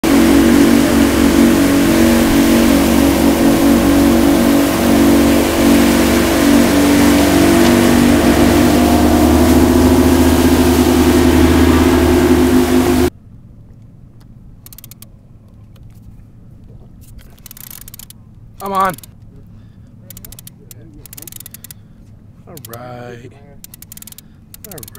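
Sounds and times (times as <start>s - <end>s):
rushing boat wake: 0.0s - 13.1s
outboard motors droning: 0.0s - 24.9s.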